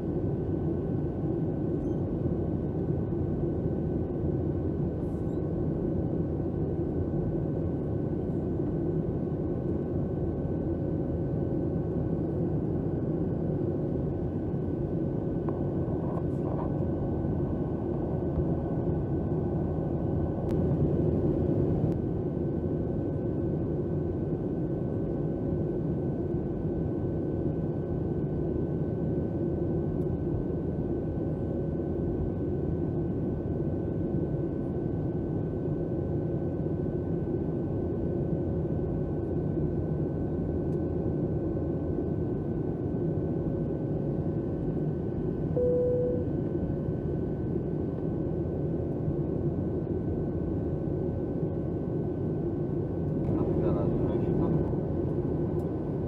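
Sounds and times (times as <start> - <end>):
airplane cabin drone: 0.0 - 56.0
faint steady whine: 0.0 - 56.0
short single tone: 45.6 - 46.4.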